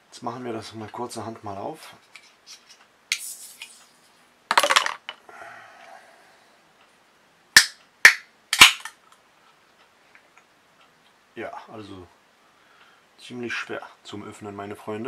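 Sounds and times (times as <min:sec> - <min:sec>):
drink can opening crack: 0:07.6 - 0:09.0.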